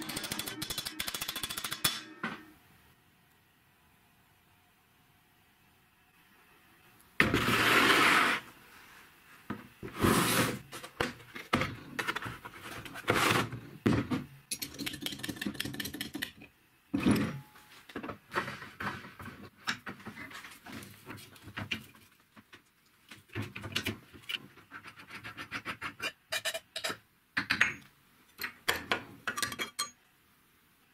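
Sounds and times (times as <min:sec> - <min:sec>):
loud sliding scrape: 0:07.3 - 0:08.6, 0:09.9 - 0:10.7.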